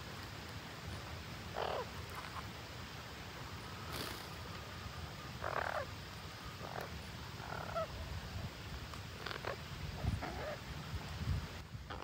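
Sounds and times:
parakeets calling: 1.5s - 2.4s, 5.4s - 5.9s, 9.2s - 10.6s.

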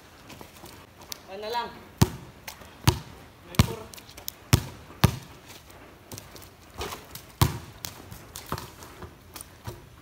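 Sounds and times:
basketball bouncing on wet concrete: 2.0s - 10.0s
running footsteps on wet surface: 2.3s - 10.0s.

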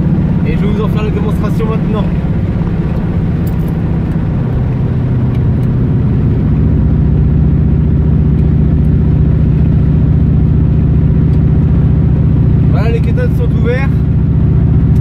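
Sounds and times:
car engine cruising: 0.0s - 15.0s.

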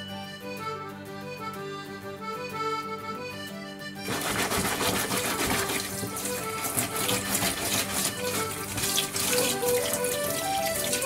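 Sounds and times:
accordion music: 0.0s - 11.0s
sponge scrubbing a root: 4.1s - 11.0s
tap water splashing into a sink: 4.1s - 11.0s.

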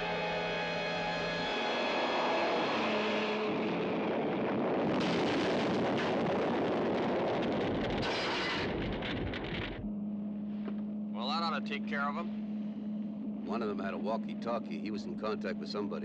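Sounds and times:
fire and blast noise: 3.9s - 9.8s.

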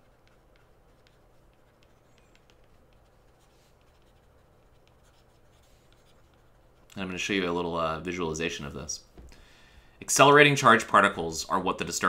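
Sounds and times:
stylus writing on a tablet screen: 0.0s - 7.4s
low steady hum: 0.0s - 12.0s.

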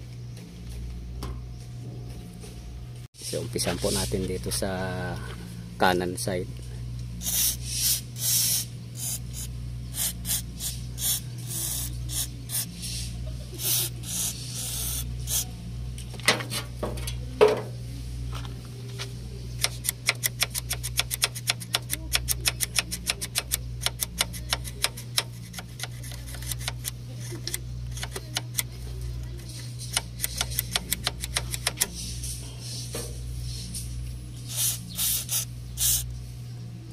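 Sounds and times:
steady low hum: 0.0s - 36.9s
aerosol spray hissing: 7.2s - 15.5s, 34.5s - 36.1s.

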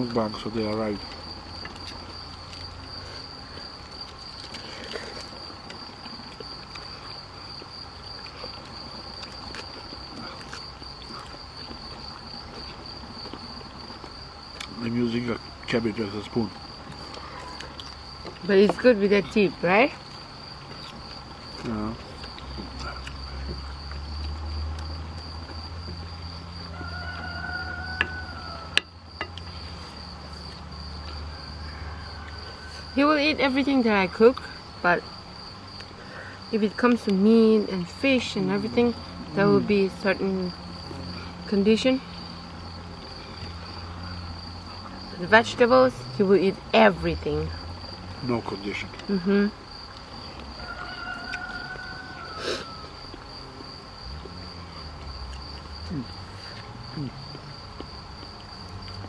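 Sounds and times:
crickets trilling: 0.0s - 59.0s
rooster crowing: 26.4s - 29.1s, 31.0s - 33.2s, 50.2s - 53.3s.

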